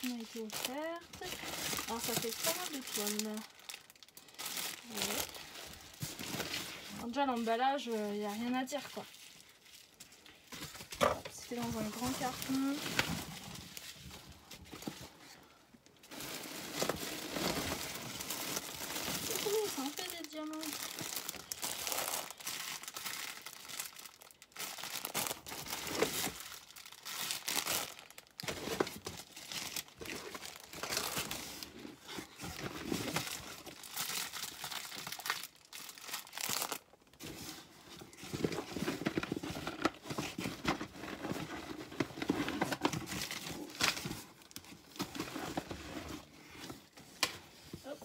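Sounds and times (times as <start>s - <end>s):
plastic tearing: 0.0s - 14.1s, 16.0s - 37.4s
plastic packaging crinkling: 0.0s - 15.2s, 15.9s - 48.0s.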